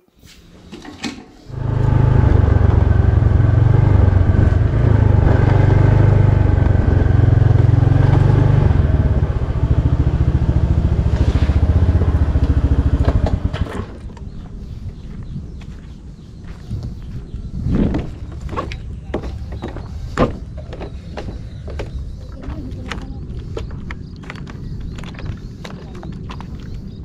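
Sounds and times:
motor scooter running: 1.5s - 14.6s.

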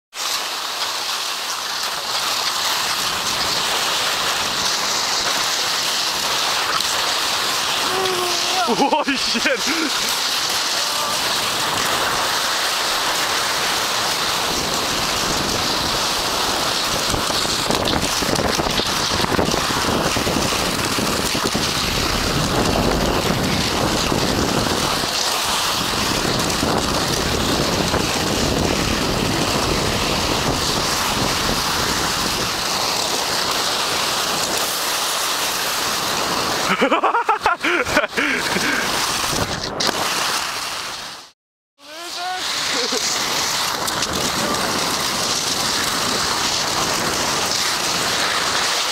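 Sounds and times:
skis sliding over snow: 0.1s - 48.9s
wind buffeting microphone: 13.2s - 34.6s, 43.0s - 48.6s.

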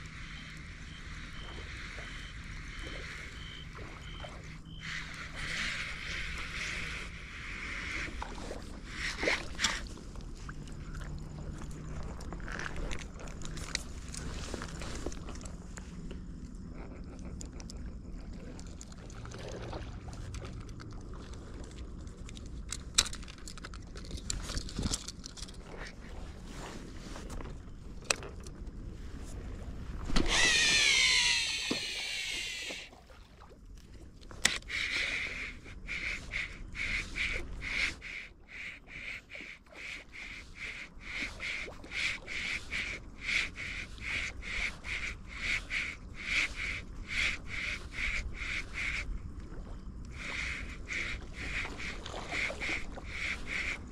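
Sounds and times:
fishing reel whirring: 30.2s - 32.9s
tackle clicks: 34.2s - 39.2s.

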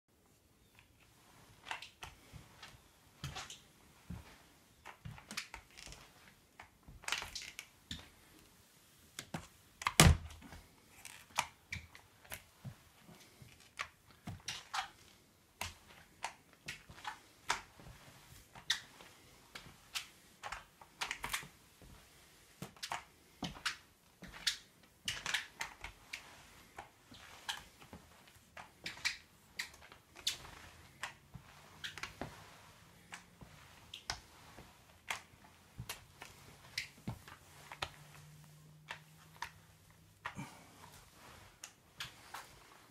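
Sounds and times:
mop clacking on wooden floor: 9.2s - 22.0s.

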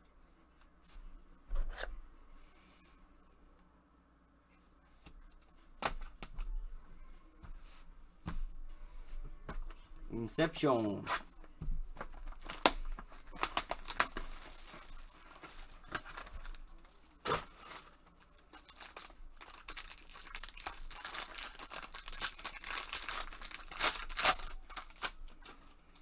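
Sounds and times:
foil packaging crinkling: 12.0s - 26.0s
foil ripping: 12.2s - 25.2s.

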